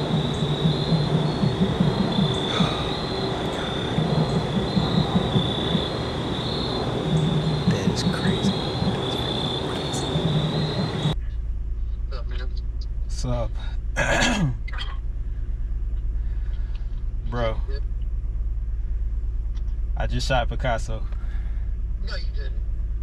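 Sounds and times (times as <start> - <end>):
crickets chirping in a trill: 0.0 - 11.2
low rumbling roar: 0.0 - 14.2.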